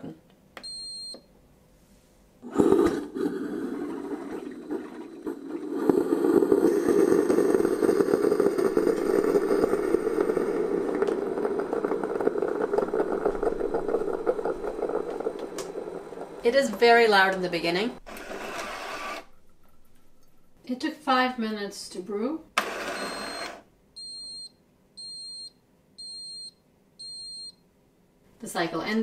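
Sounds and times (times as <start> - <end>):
coffee maker rushing noise: 2.4 - 20.6, 22.6 - 23.6.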